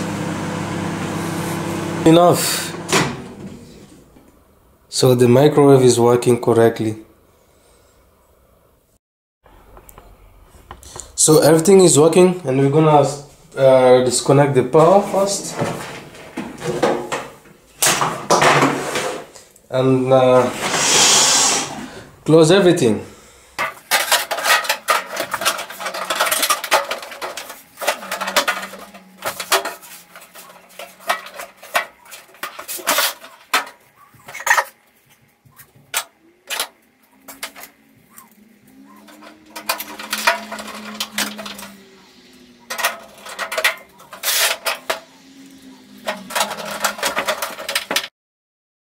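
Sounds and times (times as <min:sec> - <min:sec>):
sheet-metal cover clanking and scraping: 0:14.9 - 0:19.4, 0:20.3 - 0:22.0, 0:23.6 - 0:34.8, 0:38.9 - 0:41.9, 0:42.6 - 0:45.2, 0:45.8 - 0:48.1.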